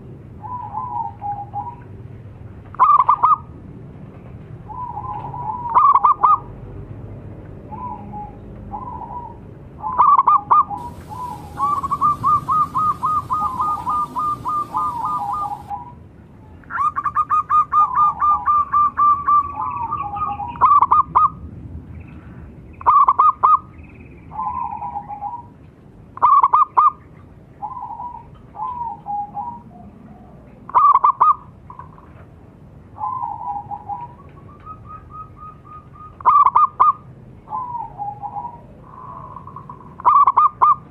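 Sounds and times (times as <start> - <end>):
doves cooing: 7.7 - 15.9
fast repeated dove notes: 10.8 - 15.7.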